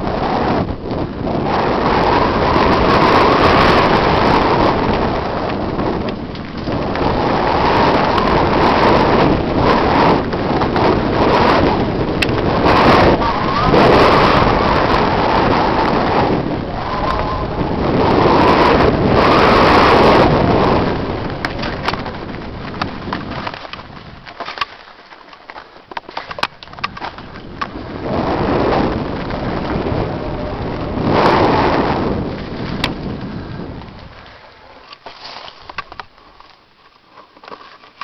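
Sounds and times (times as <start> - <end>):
wind buffeting microphone: 0.0 - 24.8, 25.8 - 36.5
bike rattling: 0.0 - 38.0
tyres crunching over stones: 21.3 - 28.2, 32.3 - 38.0.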